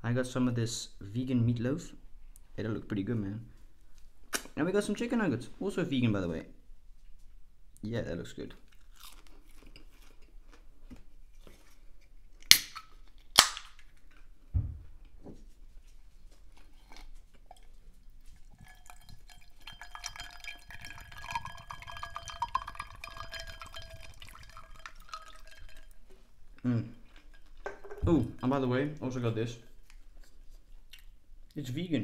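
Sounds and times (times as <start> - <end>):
dishes clinking: 18.6 - 26.0, 26.8 - 28.7.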